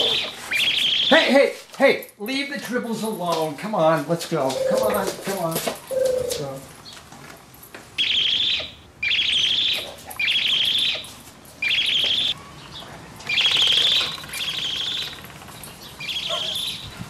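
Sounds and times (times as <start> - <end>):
toy trilling chirps: 0.0 - 1.3, 8.0 - 12.4, 13.3 - 17.0.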